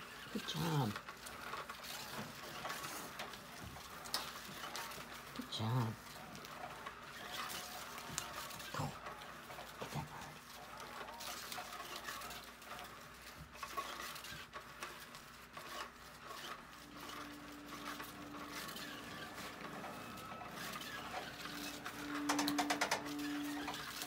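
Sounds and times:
fast clicks: 0:10.8 - 0:24.0.

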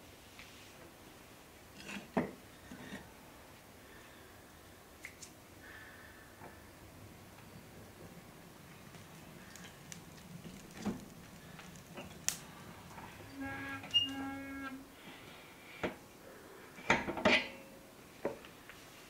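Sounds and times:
short two-part squeak: 0:13.3 - 0:14.8.

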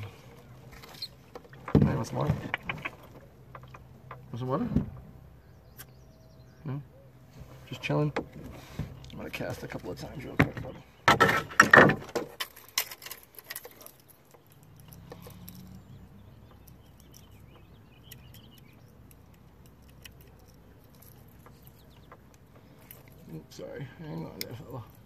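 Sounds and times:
fishing gear knocking and rattling: 0:00.7 - 0:05.0, 0:09.6 - 0:23.4.

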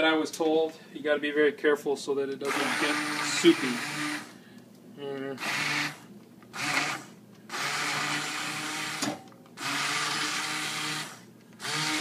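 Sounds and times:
immersion blender running: 0:02.4 - 0:04.4, 0:05.4 - 0:12.0.

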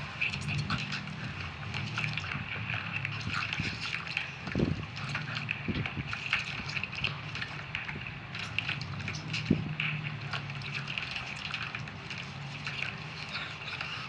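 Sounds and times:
wet chewing of jelly candies: 0:00.2 - 0:14.0.

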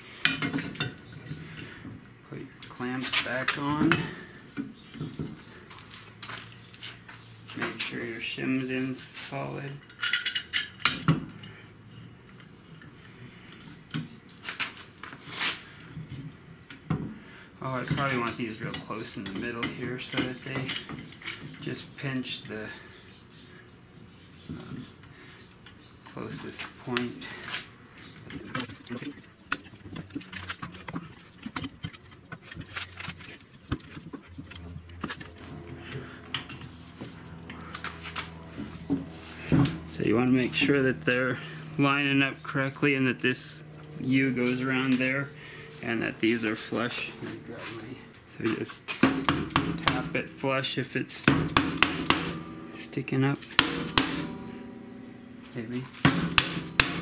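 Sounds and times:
low steady hum: 0:15.7 - 0:57.0
metal scrape: 0:32.6 - 0:48.1, 0:51.5 - 0:57.0.

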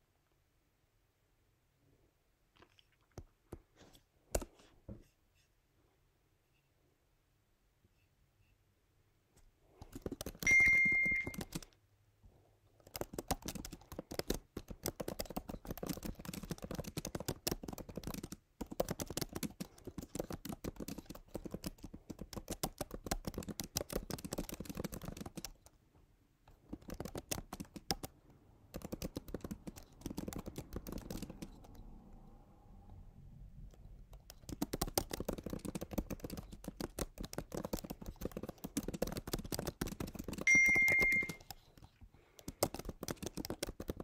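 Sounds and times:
computer keyboard typing: 0:09.8 - 0:11.8, 0:12.8 - 0:25.8, 0:26.5 - 0:31.9, 0:33.7 - 0:44.0
short high-pitched beep: 0:10.4 - 0:11.4, 0:40.5 - 0:41.4.

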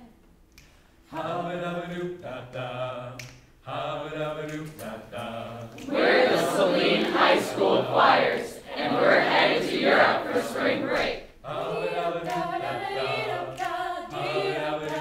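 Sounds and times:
mixed choir singing chords: 0:01.1 - 0:15.0.

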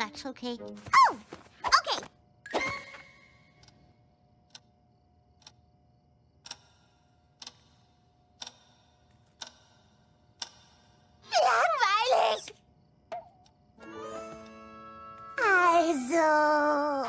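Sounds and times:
clock ticking slowly: 0:05.4 - 0:05.7, 0:06.3 - 0:11.2.

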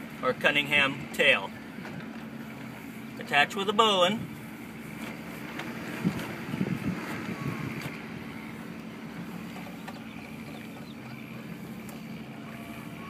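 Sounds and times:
steady low hum: 0:00.0 - 0:13.0
wind on microphone: 0:05.8 - 0:08.3.

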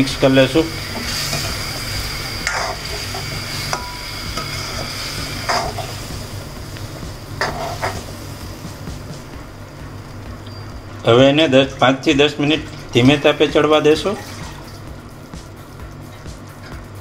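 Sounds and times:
gravy sizzling: 0:00.0 - 0:17.0
spatula scraping a pan: 0:02.4 - 0:06.0, 0:07.4 - 0:08.1.

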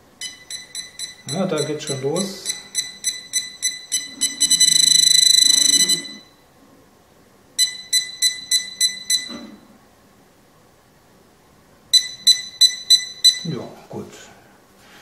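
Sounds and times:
metal detector high beeps: 0:00.2 - 0:06.4, 0:07.6 - 0:09.5, 0:12.0 - 0:13.6.

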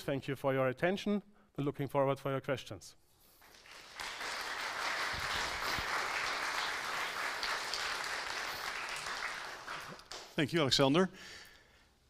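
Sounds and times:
audience applauding: 0:03.4 - 0:10.4.

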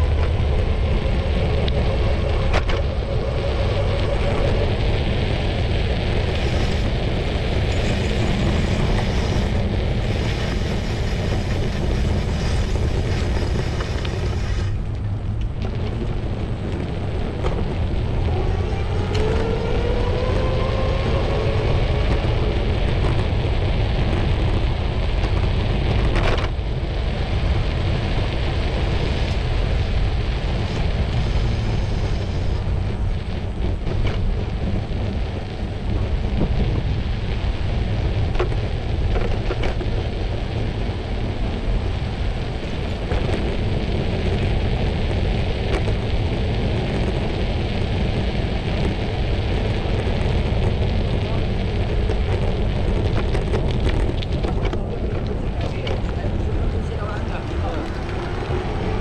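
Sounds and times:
passing vehicle engine: 0:00.0 - 0:23.9
street traffic: 0:00.0 - 0:59.0
wind buffeting microphone: 0:00.0 - 0:59.0.

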